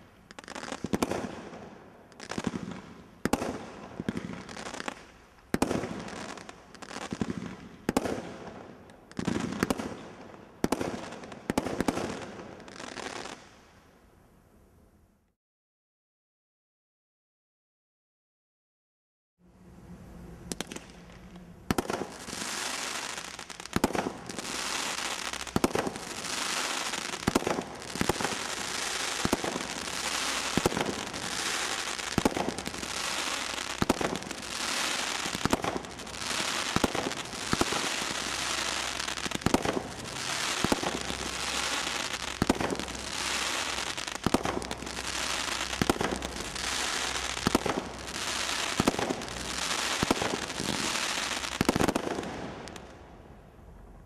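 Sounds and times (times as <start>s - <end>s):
firework stars crackling: 0.0s - 13.8s, 20.1s - 53.3s
firework launch bangs: 23.8s - 52.8s.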